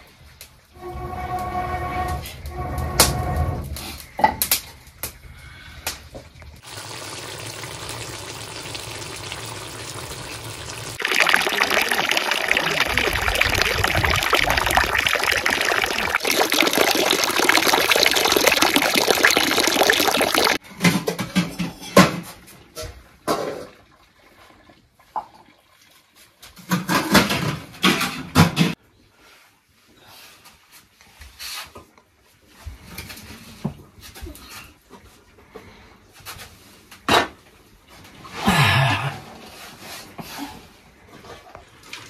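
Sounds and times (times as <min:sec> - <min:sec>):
water pouring: 0:06.6 - 0:20.6.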